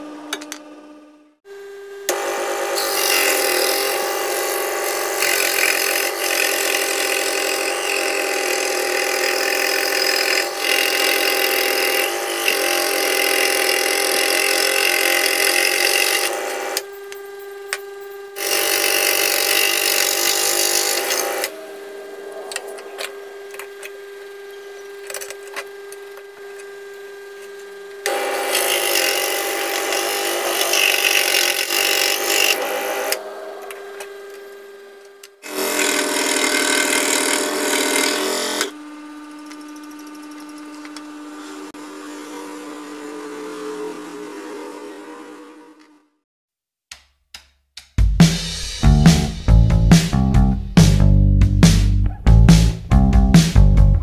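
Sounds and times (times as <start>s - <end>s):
steady motor hum: 0.0s - 45.8s
scroll saw blade cutting wood: 2.1s - 21.6s, 22.6s - 38.8s.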